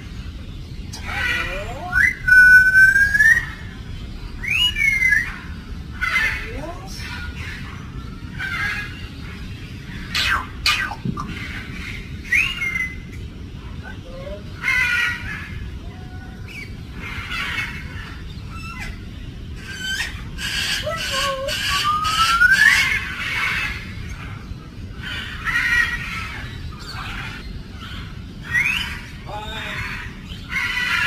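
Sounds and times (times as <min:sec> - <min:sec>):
parrot speech-like chatter: 0:01.0 - 0:02.3, 0:06.0 - 0:07.5, 0:13.7 - 0:15.3, 0:19.6 - 0:22.5, 0:29.2 - 0:31.0
parrot squeaks and whistles: 0:19.7 - 0:22.9.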